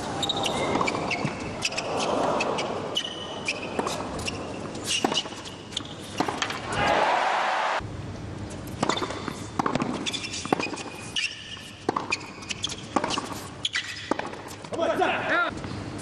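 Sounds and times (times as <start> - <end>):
sneakers squeaking on court: 0.0 - 6.6, 8.6 - 14.8
racquets striking tennis ball: 0.4 - 7.0, 8.7 - 14.9
crowd cheering: 6.7 - 7.8.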